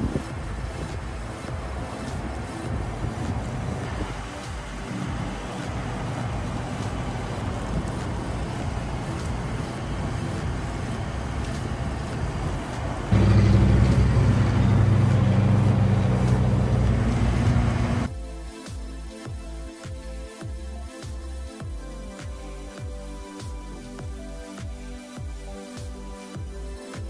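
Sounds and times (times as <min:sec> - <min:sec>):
engine droning: 0:00.0 - 0:18.1.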